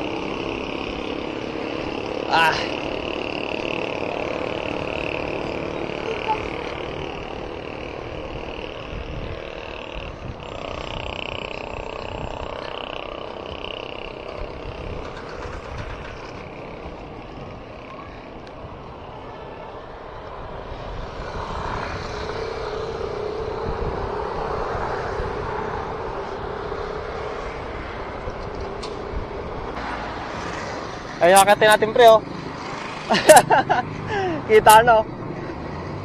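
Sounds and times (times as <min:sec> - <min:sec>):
bicycle road noise: 0:00.0 - 0:36.0
motor vehicle engine hum: 0:00.0 - 0:36.0
wind buffeting microphone: 0:02.8 - 0:31.2.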